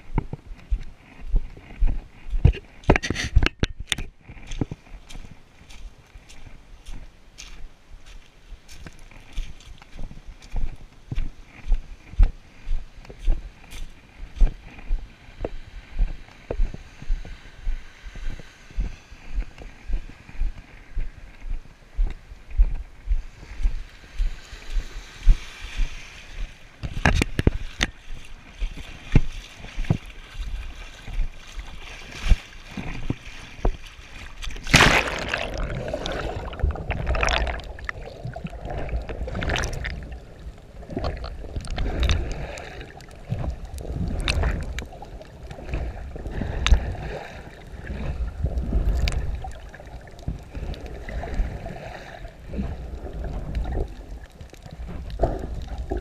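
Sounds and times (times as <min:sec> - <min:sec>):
seawater lapping and splashing: 0:23.2 - 0:56.0
muffled underwater sloshing: 0:27.1 - 0:56.0
big splash: 0:34.6 - 0:40.1.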